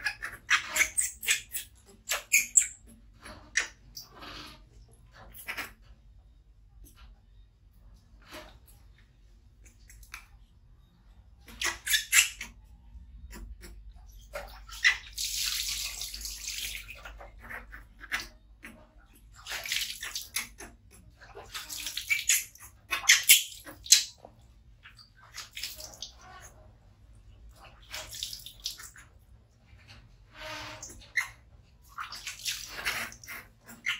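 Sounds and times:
water splashing in a plastic basin: 13.3 - 33.9.

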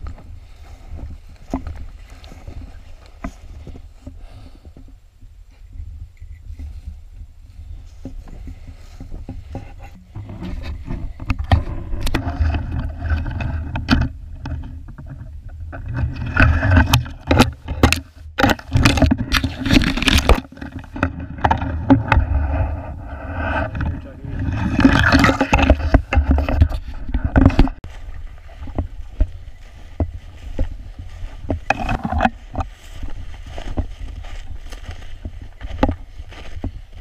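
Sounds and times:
footsteps crunching in snow: 0.0 - 4.6, 27.8 - 37.0
twigs scraping and snapping: 8.1 - 37.0.

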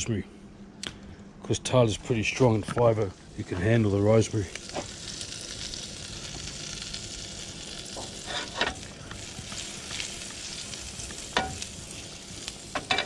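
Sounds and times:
butter sizzling in a frying pan: 2.9 - 13.0
pan clinking on burner grate: 11.3 - 11.7, 12.7 - 13.0.

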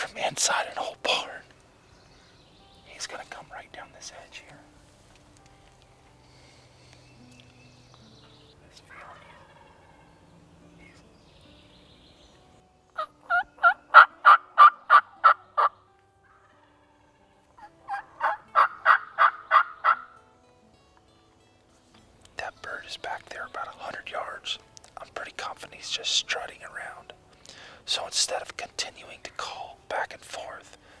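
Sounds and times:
turkey yelping: 8.9 - 10.1, 13.0 - 16.5, 17.6 - 20.2.

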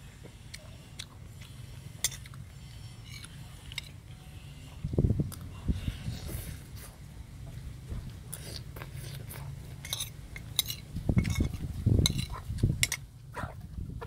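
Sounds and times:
metal spoon clinking on dish: 9.8 - 13.0.

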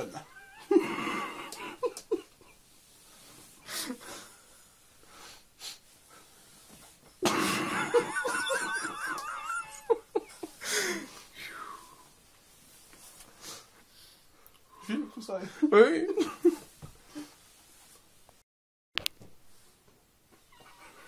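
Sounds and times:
man wheezing laughter: 7.2 - 11.1.

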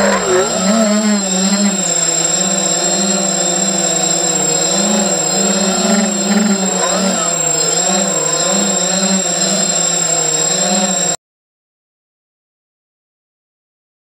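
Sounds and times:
drone motors and propellers whining: 0.0 - 11.2.

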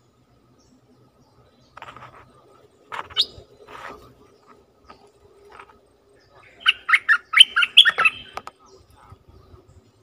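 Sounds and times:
bird singing chirping notes: 2.6 - 5.2, 6.0 - 10.0.

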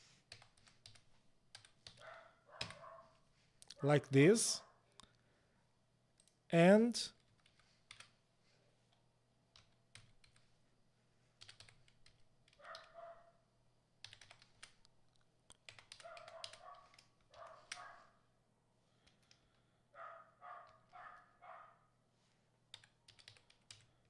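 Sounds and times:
typing on computer keyboard: 0.3 - 2.8, 7.2 - 8.2, 9.5 - 10.5, 11.4 - 13.0, 14.0 - 14.9, 15.5 - 17.9, 19.0 - 19.6, 22.7 - 24.0.

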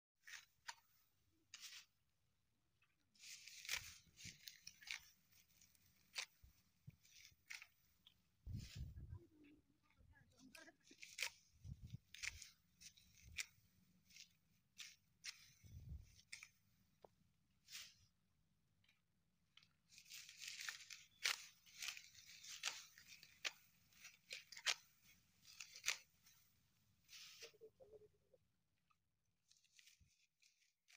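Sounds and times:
dry straw rustling and crackling: 3.2 - 9.2, 10.4 - 16.5, 19.6 - 27.5.

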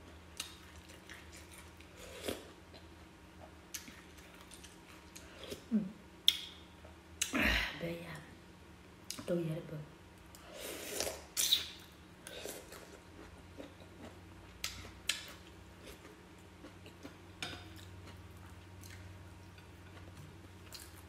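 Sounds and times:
person chewing: 0.4 - 2.9, 10.3 - 21.0.

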